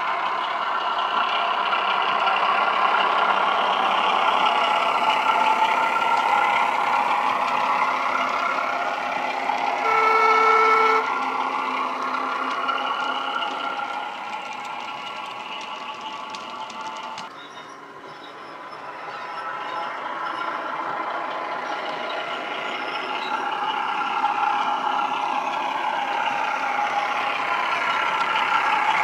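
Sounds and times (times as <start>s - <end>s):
model diesel engine sound: 0.0s - 29.0s
train horn blast: 9.8s - 11.2s.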